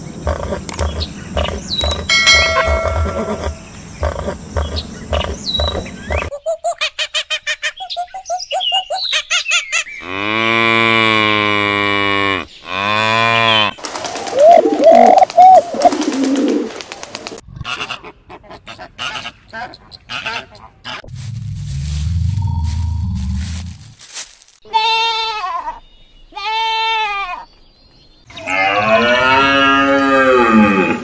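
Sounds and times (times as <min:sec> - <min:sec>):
cow mooing: 0:28.4 - 0:31.0.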